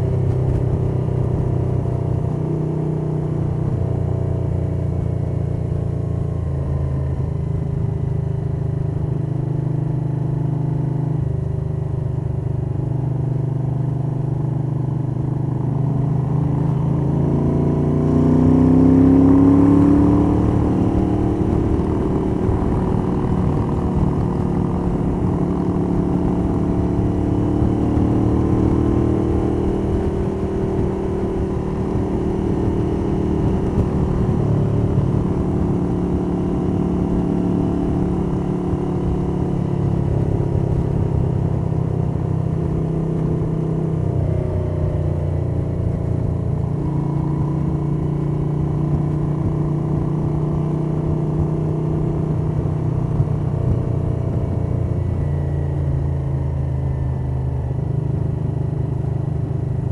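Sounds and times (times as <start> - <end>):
motorcycle engine running: 0.0 - 59.9
wind noise: 18.1 - 44.5, 46.0 - 56.8.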